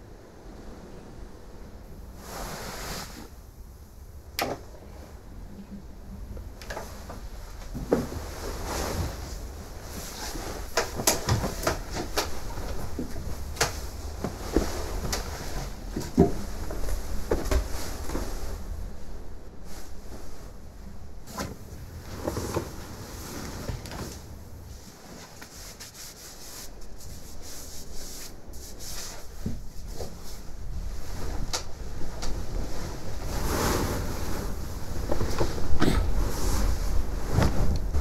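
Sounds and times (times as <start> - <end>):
low steady rumble: 0.0 - 25.2
bedclothes rustling: 6.4 - 38.0
wooden bed clicks and knocks: 10.8 - 15.3, 15.9 - 18.2.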